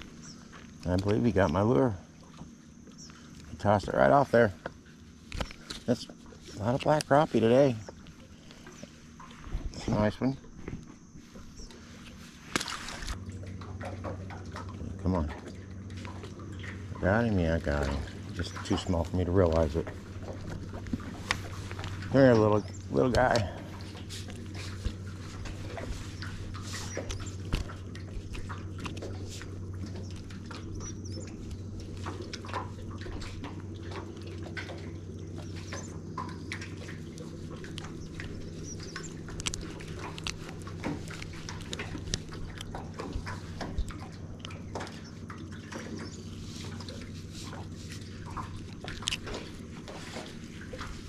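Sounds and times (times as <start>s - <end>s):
steady low hum: 0.0s - 51.0s
clicks and taps of fish handling: 4.6s - 7.2s, 17.8s - 30.8s, 35.4s - 51.0s.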